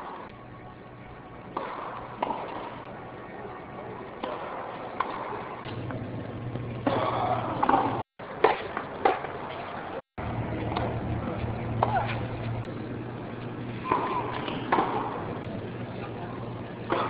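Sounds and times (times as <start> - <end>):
steady hum: 0.0 - 17.0
racket striking tennis ball: 1.5 - 2.7, 4.2 - 5.4, 6.8 - 9.4, 11.8 - 12.3, 13.8 - 15.2
tennis ball bouncing: 1.5 - 2.7, 4.2 - 5.7, 6.8 - 9.4, 11.8 - 12.3, 13.8 - 15.2
crowd murmur: 9.4 - 17.0.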